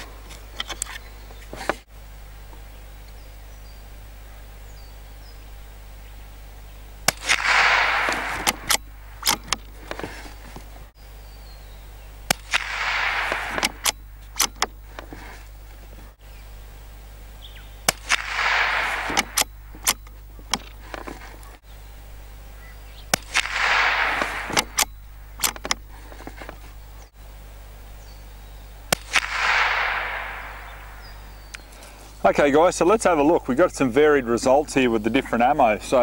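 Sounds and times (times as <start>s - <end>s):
rifle shots with echo: 7.0s - 10.2s, 12.3s - 14.6s, 17.8s - 20.0s, 23.1s - 25.6s, 28.9s - 31.5s
rifle bolt clicks: 7.1s - 10.2s, 12.3s - 15.2s, 17.9s - 21.5s, 23.1s - 26.6s.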